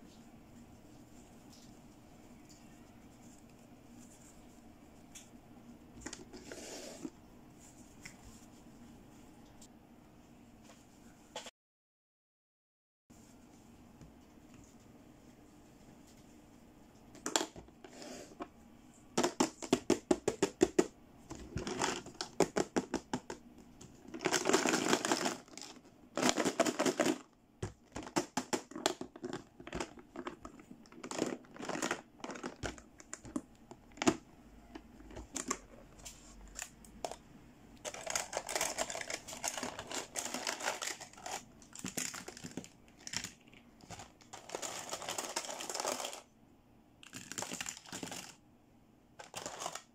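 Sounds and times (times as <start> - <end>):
plastic toy pieces clattering: 24.1 - 32.8, 37.8 - 46.2, 47.0 - 48.4, 49.2 - 49.9.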